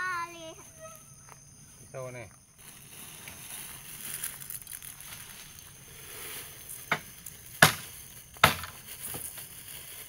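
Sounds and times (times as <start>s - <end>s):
chopping strikes into wood: 7.6s - 8.8s.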